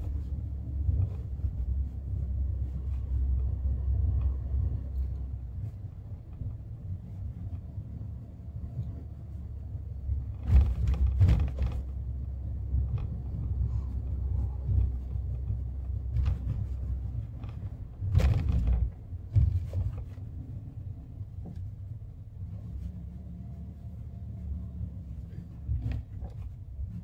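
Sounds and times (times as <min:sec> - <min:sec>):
thumps and rattles: 0:00.0 - 0:02.0, 0:10.0 - 0:22.9, 0:25.1 - 0:27.0
car road noise rumble: 0:00.0 - 0:27.0.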